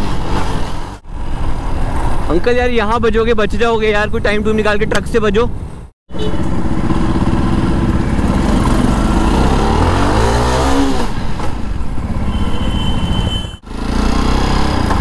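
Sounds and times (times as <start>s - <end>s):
motorcycle engine revving: 6.1s - 15.0s.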